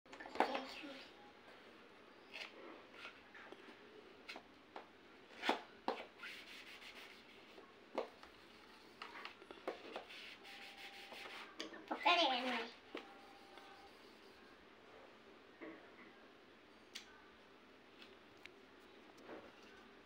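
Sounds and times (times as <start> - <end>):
marker scratching on plastic board: 5.4 - 8.2, 9.0 - 11.6.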